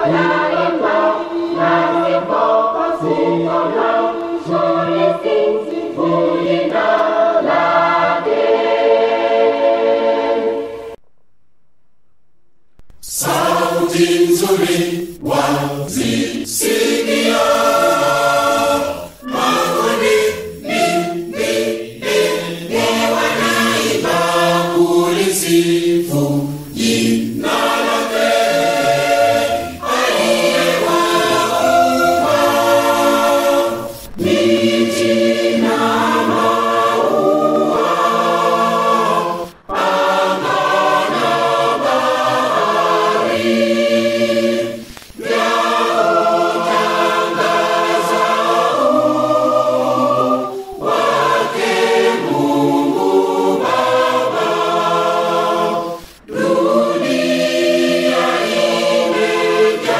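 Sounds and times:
choir singing a hymn: 0.0s - 11.0s, 13.0s - 59.9s.

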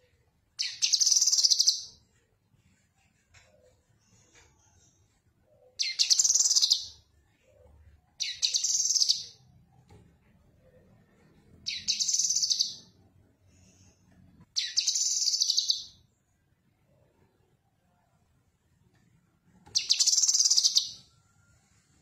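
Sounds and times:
bird singing high chatter: 0.6s - 2.0s, 5.8s - 7.1s, 8.2s - 9.5s, 11.6s - 13.0s, 14.6s - 16.0s, 19.8s - 21.2s.

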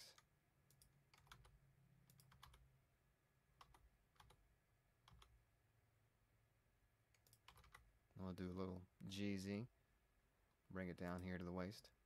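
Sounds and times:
computer keys clicking: 0.1s - 2.7s, 3.6s - 4.4s, 5.0s - 5.4s, 7.1s - 7.8s, 11.0s - 11.3s.

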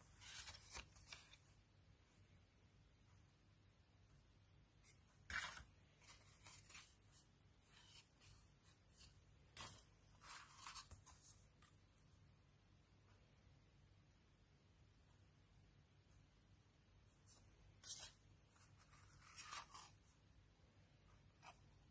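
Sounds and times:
paper cards rustling: 0.0s - 1.5s, 4.8s - 11.8s, 17.8s - 20.1s.

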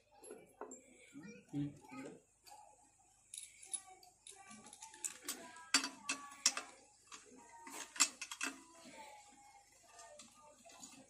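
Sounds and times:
metal tools clicking and clinking: 3.3s - 8.8s.

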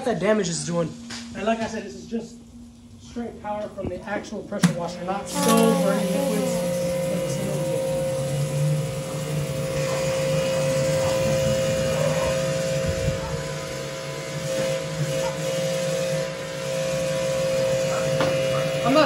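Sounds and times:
pressure washer motor whining: 0.0s - 19.0s.

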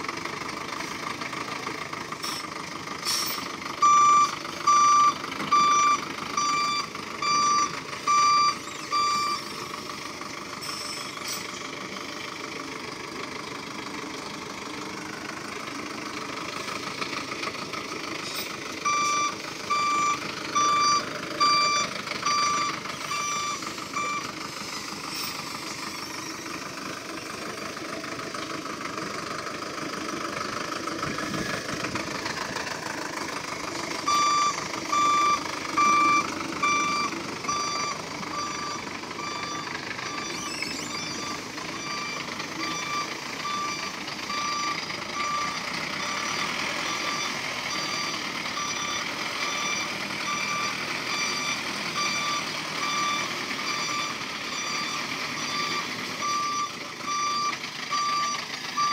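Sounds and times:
diesel truck engine running: 0.0s - 58.9s
reversing alarm beeps: 3.8s - 9.6s, 18.8s - 24.4s, 34.0s - 58.9s.

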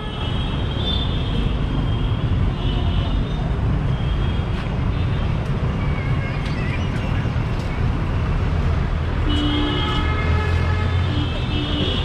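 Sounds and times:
low rumble of vehicles: 0.0s - 12.0s.

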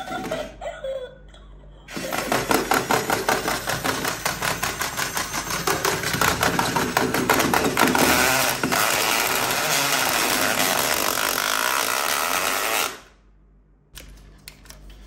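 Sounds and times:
toy motor and gearbox clatter: 1.9s - 13.0s
plastic arms knocking: 2.0s - 9.0s.

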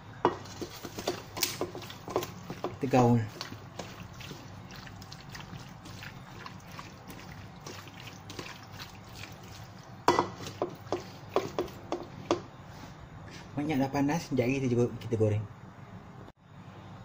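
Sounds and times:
oil heating with faint crackles: 0.0s - 12.6s.

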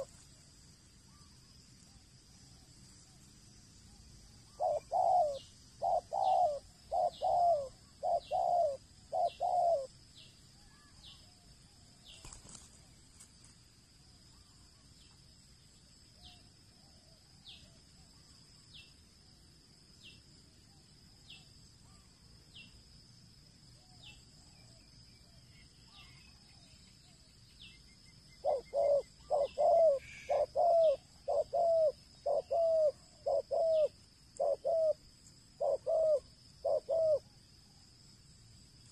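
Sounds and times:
doves cooing: 4.6s - 9.9s, 28.4s - 37.3s.

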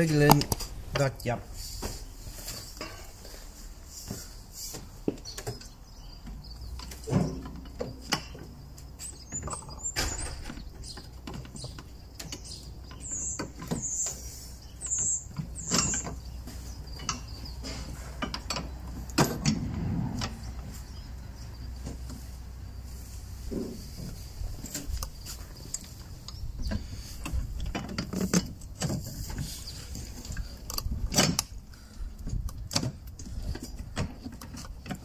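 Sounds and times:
metal clunks and scrapes: 0.2s - 5.7s, 6.8s - 11.7s, 12.3s - 25.6s, 26.7s - 31.6s.

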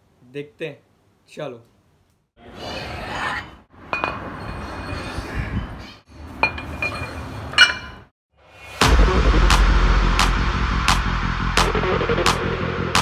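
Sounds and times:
metal scraping on metal: 2.6s - 8.1s
weight plates clinking: 3.9s - 5.3s, 6.3s - 8.1s.

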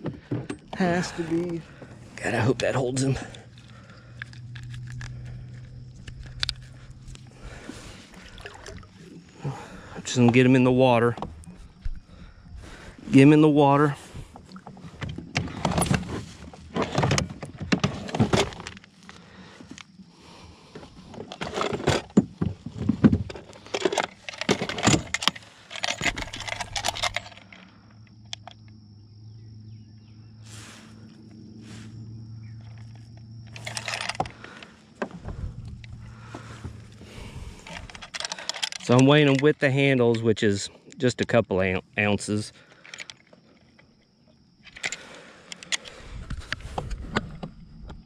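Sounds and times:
fishing gear clattering: 0.0s - 11.9s, 14.1s - 20.0s, 20.7s - 28.6s, 32.6s - 40.4s, 42.0s - 47.0s.

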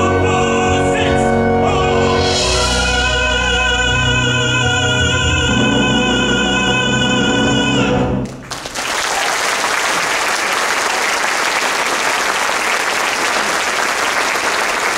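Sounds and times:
man singing with vibrato: 0.0s - 8.4s
musical accompaniment: 0.0s - 8.6s
audience applause: 8.4s - 14.9s.

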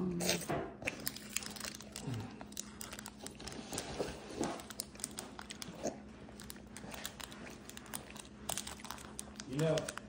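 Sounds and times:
child chewing candy: 0.0s - 10.0s
plastic wrapper crinkling: 0.9s - 10.0s.

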